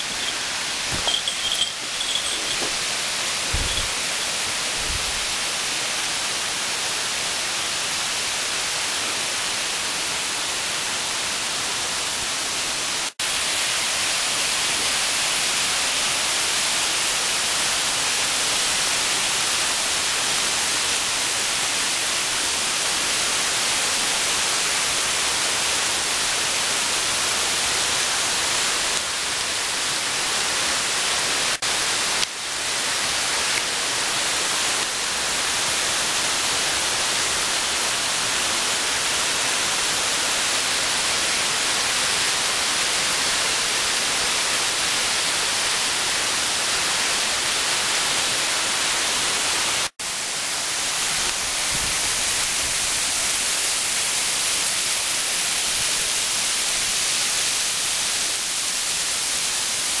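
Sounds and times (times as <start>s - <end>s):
waterfall rushing: 0.0s - 9.0s.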